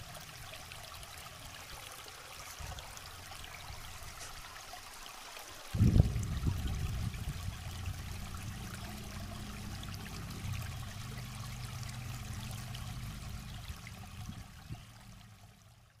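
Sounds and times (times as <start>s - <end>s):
water trickling over rocks: 0.0s - 16.0s.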